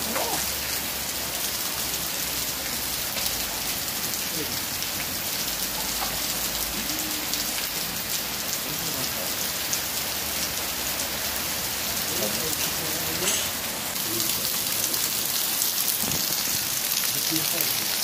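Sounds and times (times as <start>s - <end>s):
heavy rain splashing on stone: 0.0s - 18.0s
rain pouring off roof: 0.0s - 18.0s.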